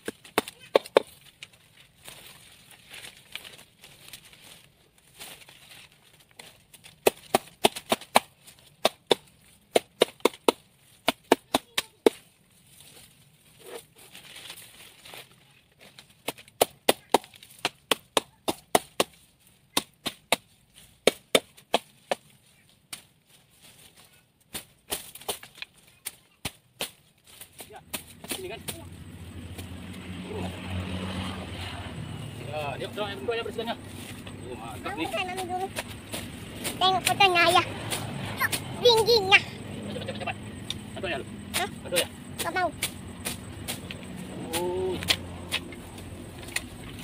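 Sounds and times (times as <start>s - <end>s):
wood being chopped with a blade: 0.0s - 1.3s, 6.4s - 12.3s, 15.9s - 23.1s, 24.5s - 30.1s, 41.5s - 47.0s.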